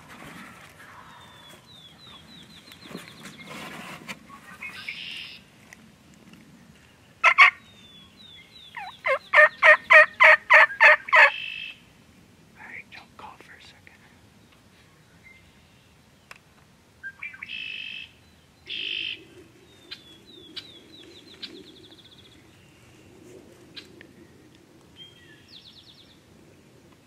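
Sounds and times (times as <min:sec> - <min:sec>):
turkey yelping: 0:07.2 - 0:07.6, 0:08.8 - 0:11.8.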